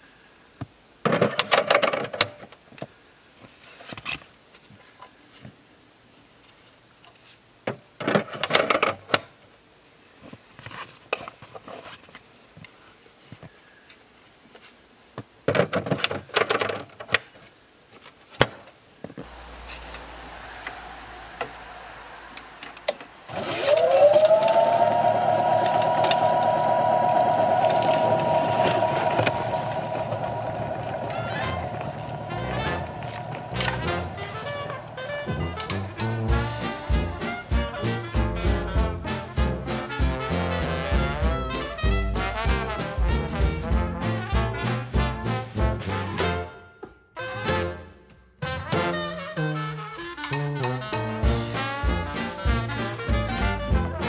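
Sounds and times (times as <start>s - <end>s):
electric motor whine: 19.3s - 36.2s.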